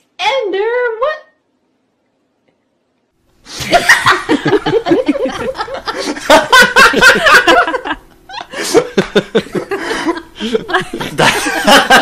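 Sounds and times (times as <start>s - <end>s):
person laughing heartily: 3.5s - 12.0s.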